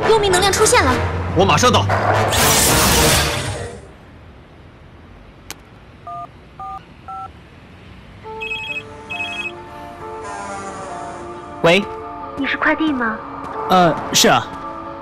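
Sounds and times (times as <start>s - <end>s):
keypad beeps: 8.4s - 9.6s
melodic phone ringtone: 8.4s - 9.6s.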